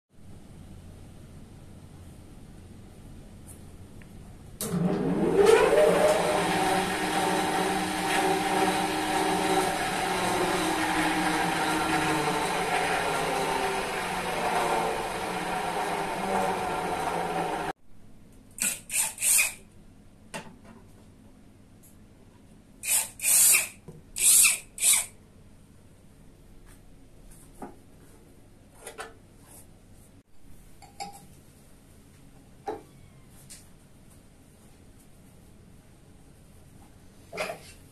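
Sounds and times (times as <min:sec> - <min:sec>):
wood lathe running: 0:04.9 - 0:17.7
cordless drill whirring: 0:18.6 - 0:19.6, 0:22.8 - 0:25.1.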